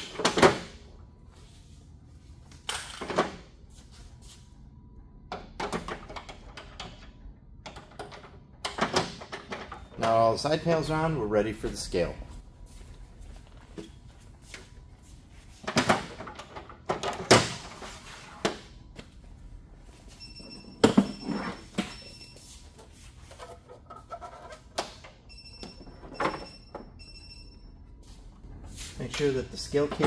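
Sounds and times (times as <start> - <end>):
faint high beeping: 19.9 - 22.7.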